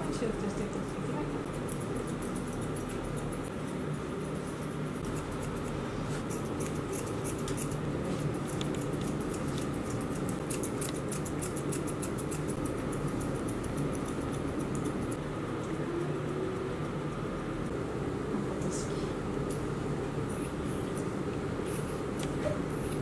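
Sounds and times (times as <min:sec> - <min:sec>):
steady low hum: 0:00.0 - 0:23.0
scissors snipping hair: 0:00.6 - 0:17.8.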